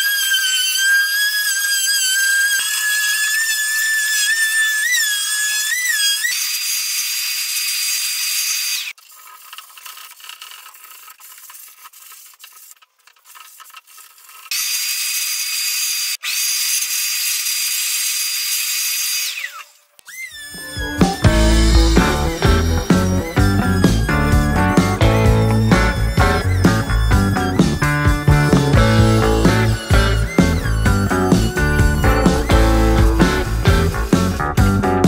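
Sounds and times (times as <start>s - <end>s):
sandpaper scratching by hand: 0.0s - 16.0s, 20.5s - 35.0s
electric sander motor whine: 19.2s - 35.0s.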